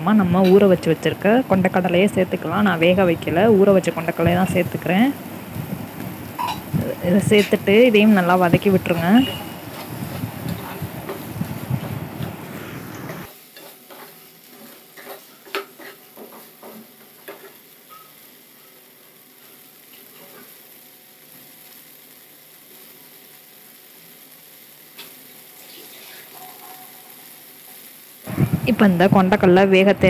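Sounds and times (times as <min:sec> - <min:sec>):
masala sizzling in oil: 0:00.0 - 0:30.0
spatula scraping and knocking pan: 0:13.5 - 0:18.1.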